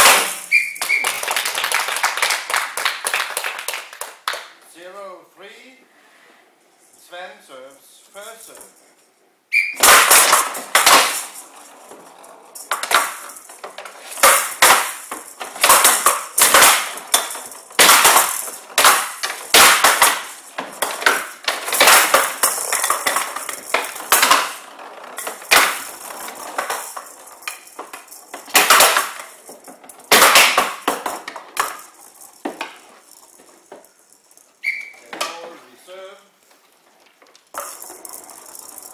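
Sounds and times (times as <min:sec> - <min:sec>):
ball clacking off walls: 0:00.0 - 0:04.6, 0:09.6 - 0:35.6, 0:36.5 - 0:38.9
ball rattling across table: 0:00.0 - 0:04.6, 0:08.2 - 0:35.6, 0:36.5 - 0:38.9
wooden bats hitting ball: 0:00.0 - 0:04.6, 0:09.6 - 0:11.5, 0:12.6 - 0:33.9.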